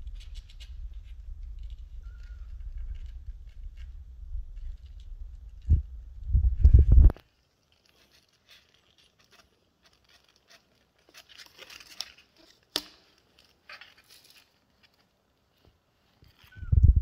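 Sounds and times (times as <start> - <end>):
claws scratching cardboard: 0.0 - 6.2, 7.0 - 16.6
low bumps: 0.7 - 7.2.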